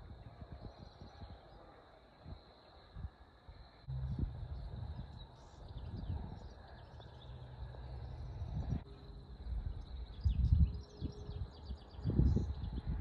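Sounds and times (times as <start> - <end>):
wind rumbling on microphone: 0.0 - 13.0
faint insect trill: 0.2 - 13.0
small birds chirping: 3.6 - 13.0.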